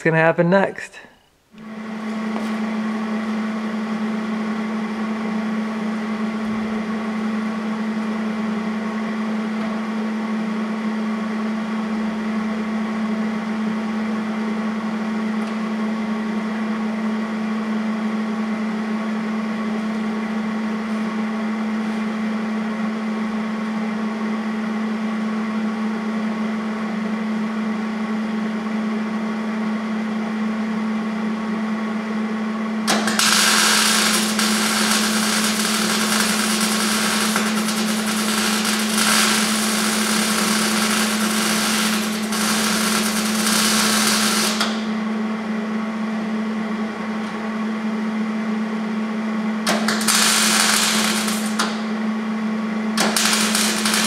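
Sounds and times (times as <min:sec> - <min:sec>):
machine hum: 0:00.0 - 0:54.0
steady whine: 0:29.9 - 0:54.0
welder arc crackling: 0:32.9 - 0:44.9, 0:49.7 - 0:51.8, 0:53.0 - 0:54.0.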